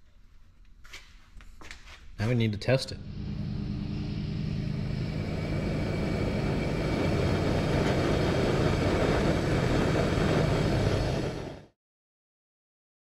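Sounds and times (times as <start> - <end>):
gas flame hissing: 3.0 - 11.7.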